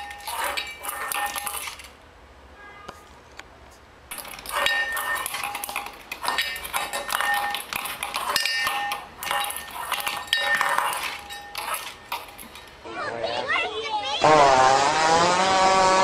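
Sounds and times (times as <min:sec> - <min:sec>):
metal bowl clattering on tile floor: 0:00.0 - 0:01.9, 0:04.1 - 0:12.8.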